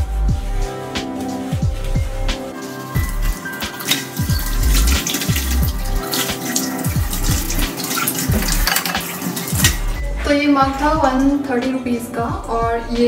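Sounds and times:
background music: 0:00.0 - 0:13.0
tap water running into sink: 0:02.6 - 0:10.0
water splashing on mug: 0:02.7 - 0:10.0.

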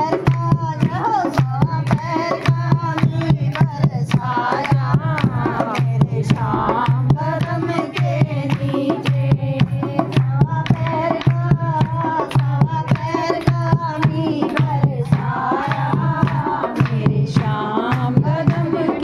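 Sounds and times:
hand drum beat: 0:00.0 - 0:19.0
women singing together: 0:00.0 - 0:19.0.

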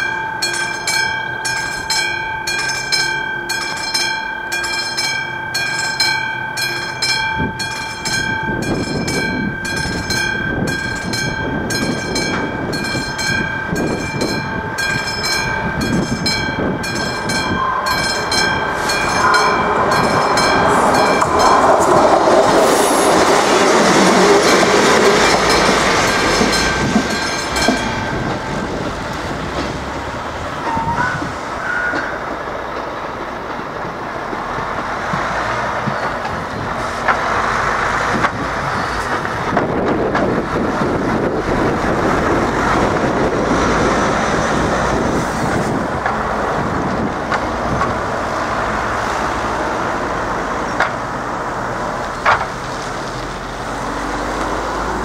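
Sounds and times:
level crossing bell ringing: 0:00.0 - 0:21.8, 0:24.4 - 0:29.1
train rumble and wheel noise: 0:00.0 - 0:55.0.

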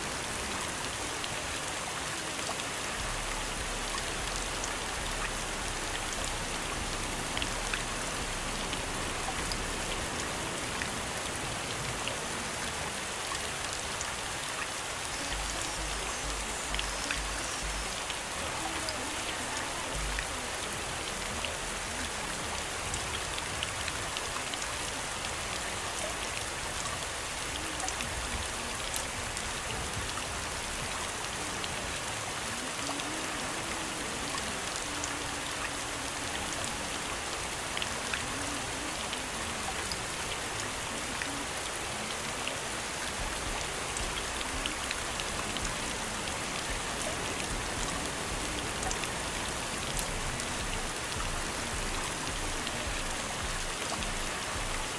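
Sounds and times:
steady rain hiss: 0:00.0 - 0:54.9
raindrop ticks: 0:15.2 - 0:19.0.

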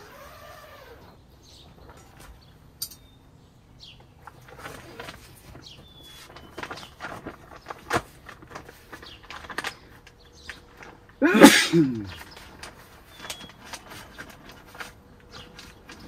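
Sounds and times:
plastic door flap rustling: 0:04.3 - 0:11.2
person sneezing: 0:11.2 - 0:12.2.

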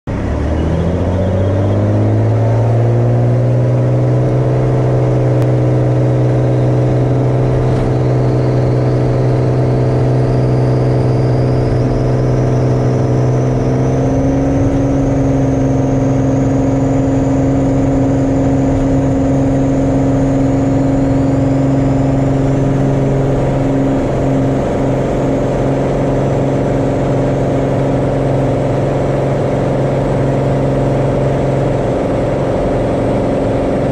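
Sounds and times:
propeller plane engine droning: 0:00.1 - 0:33.9
faint high whine: 0:05.3 - 0:28.9.

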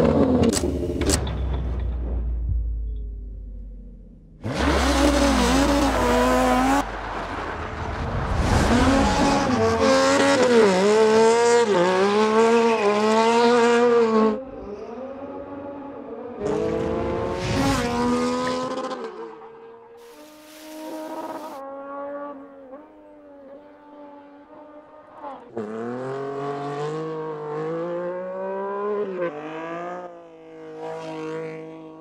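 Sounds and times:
motorcycle engine revving: 0:08.7 - 0:19.1, 0:20.1 - 0:22.4.

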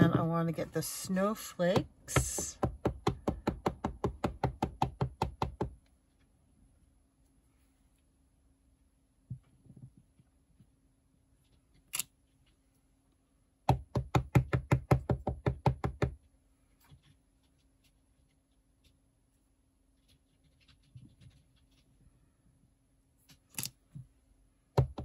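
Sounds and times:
rubber stamp knocking: 0:01.8 - 0:05.8, 0:13.7 - 0:16.2, 0:24.8 - 0:25.0.

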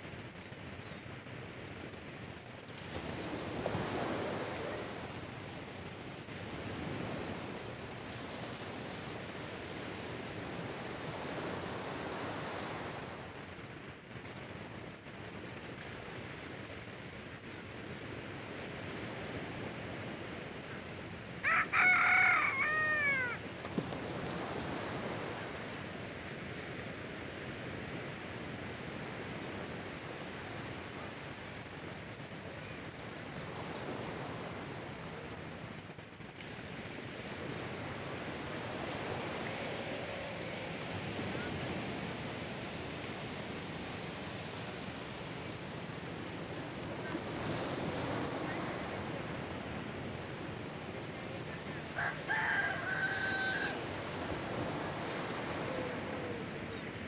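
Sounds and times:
waves washing on shore: 0:00.0 - 0:57.0
rooster crowing: 0:21.4 - 0:23.4, 0:51.9 - 0:53.9.

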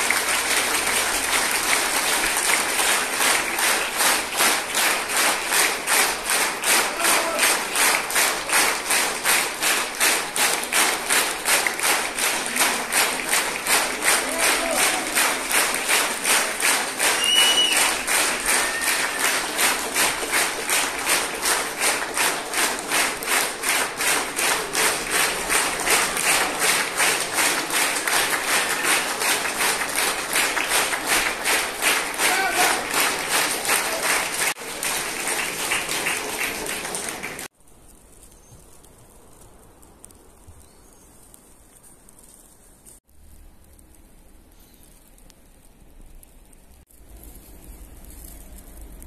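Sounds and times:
audience clapping in unison: 0:00.0 - 0:37.6.

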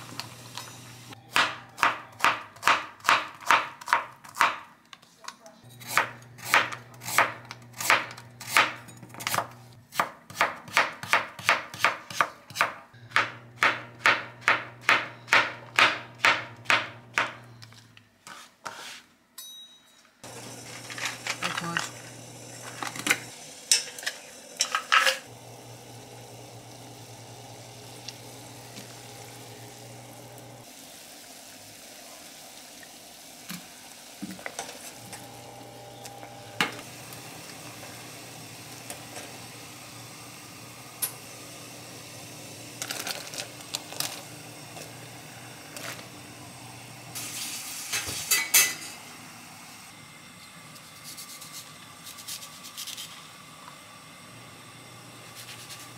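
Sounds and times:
tongs and dishes clinking: 0:23.7 - 0:25.2, 0:47.9 - 0:48.9.

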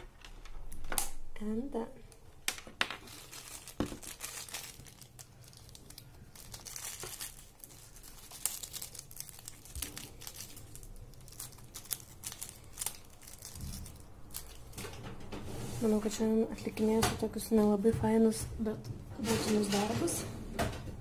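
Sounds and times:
plastic bag crinkling: 0:02.8 - 0:15.0.

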